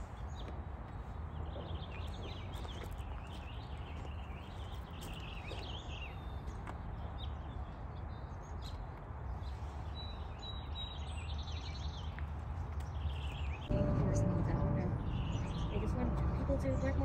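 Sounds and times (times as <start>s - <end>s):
wild birds chirping and singing: 0.0s - 13.7s, 14.5s - 17.0s
low background rumble: 13.6s - 17.0s.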